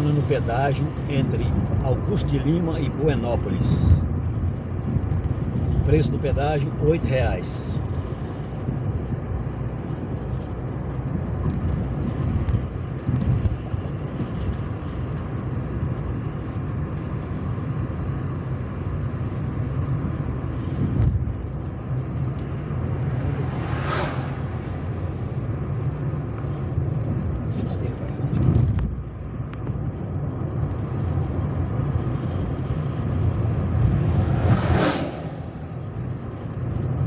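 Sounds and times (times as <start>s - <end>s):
car interior road rumble: 0.0s - 37.0s
brief whoosh: 23.5s - 24.9s, 33.8s - 35.8s.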